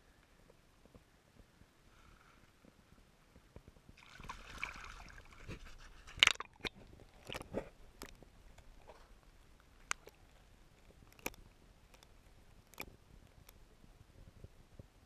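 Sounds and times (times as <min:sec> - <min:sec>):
water sloshing and splashing: 0:04.0 - 0:11.3
underwater knocks and clicks: 0:05.4 - 0:09.0, 0:10.8 - 0:13.6.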